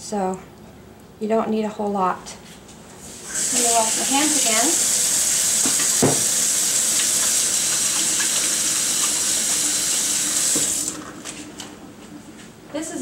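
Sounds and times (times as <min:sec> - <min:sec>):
tap running: 0:03.3 - 0:11.8.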